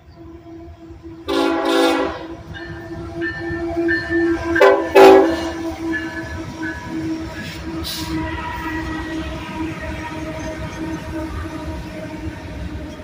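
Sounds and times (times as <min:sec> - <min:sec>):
locomotive horn toots: 0:00.4 - 0:10.8
locomotive engines running: 0:00.8 - 0:13.0.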